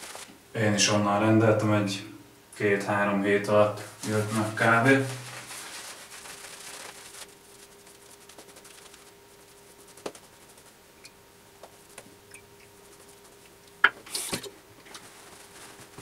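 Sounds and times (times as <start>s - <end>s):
faint steady hum: 0.0s - 16.0s
short rustle: 3.8s - 10.8s, 14.1s - 16.0s.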